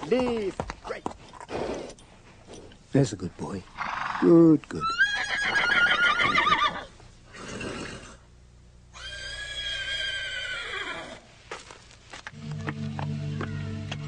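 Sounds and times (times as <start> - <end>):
horse whinnying: 3.8 - 8.2, 8.9 - 11.2
music: 12.3 - 14.0.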